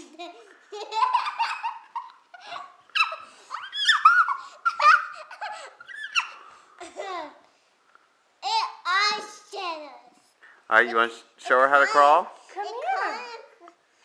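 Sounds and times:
young child laughing: 0.0 - 7.4.

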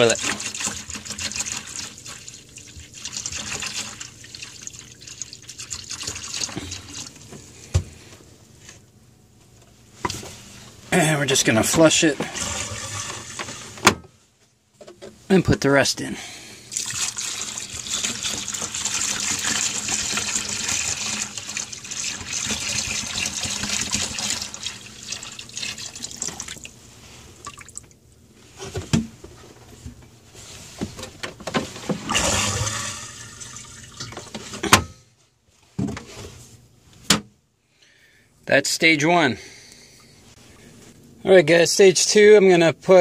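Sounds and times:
liquid pouring into toilet bowl: 0.0 - 7.3, 12.2 - 13.8, 16.7 - 26.8, 27.4 - 27.9, 31.9 - 34.5
toilet flushing: 0.0 - 7.3, 11.8 - 13.8, 16.7 - 26.8, 31.8 - 34.7.

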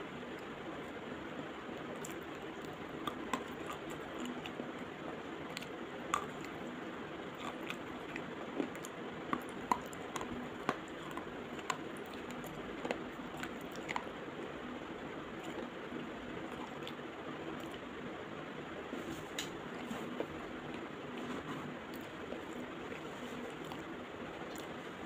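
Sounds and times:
pencil being chewed crunching: 1.8 - 4.7, 5.5 - 6.6, 7.3 - 14.1.

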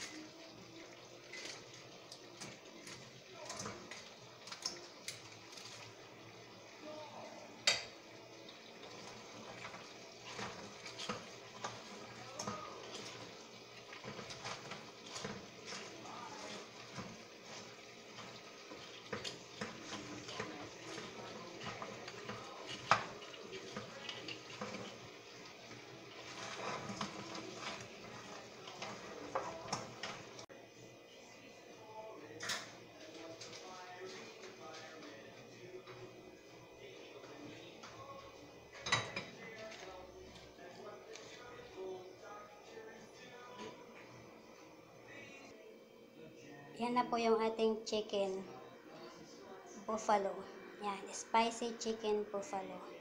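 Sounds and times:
low sizzle: 0.0 - 53.0
tongs and spatula scraping a wok: 9.6 - 30.4.

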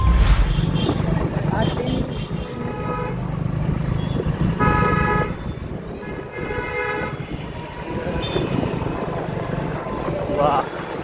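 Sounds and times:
engine and road rumble: 0.0 - 11.0
vehicle horn honking: 4.0 - 7.4.

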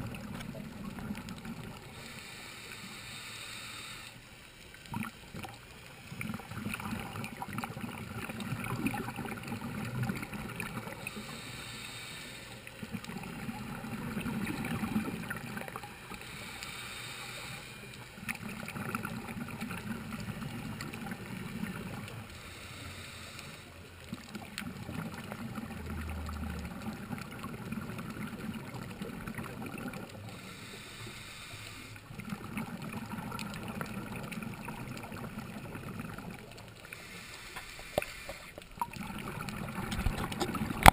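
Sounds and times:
exhaled air bubbling underwater: 0.0 - 40.9
regulator inhale hiss: 1.8 - 4.6, 10.9 - 12.9, 16.0 - 18.2, 22.2 - 24.0, 30.2 - 32.1, 36.8 - 38.7.

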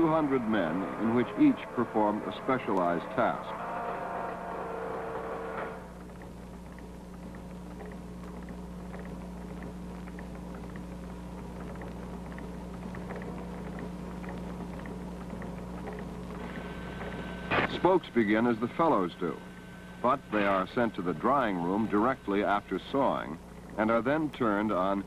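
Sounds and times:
steady low hum: 0.0 - 25.0
faint irregular ticks: 5.1 - 19.8, 21.0 - 25.0.

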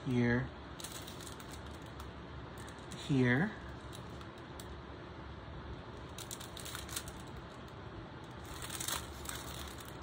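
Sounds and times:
plastic film crinkling: 0.8 - 3.0, 3.6 - 4.8, 5.9 - 10.0.

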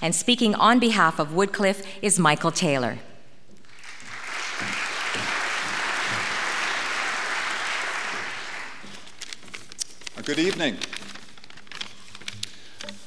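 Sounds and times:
audience applauding: 3.6 - 9.2.

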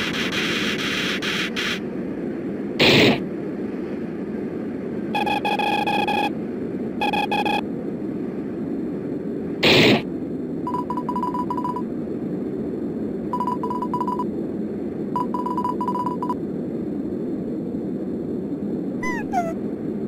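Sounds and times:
static hiss and rumble: 0.0 - 20.0
loud noise blasts: 2.8 - 3.2, 9.6 - 10.1.

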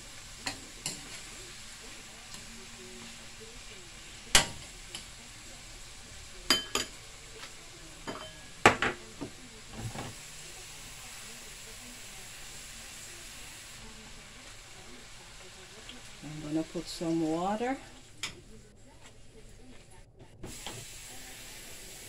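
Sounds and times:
vegetables sizzling in a pan: 0.0 - 18.7, 19.7 - 22.0
spoon clinking against pan: 6.5 - 7.0, 8.0 - 8.8.

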